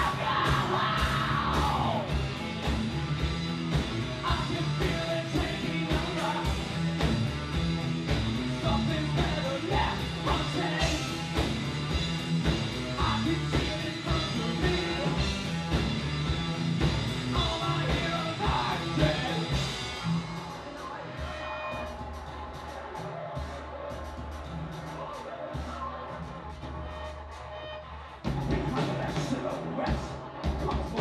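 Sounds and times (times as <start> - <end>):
shouted singing: 0.0 - 2.2, 17.3 - 31.0
drum beat: 0.0 - 31.0.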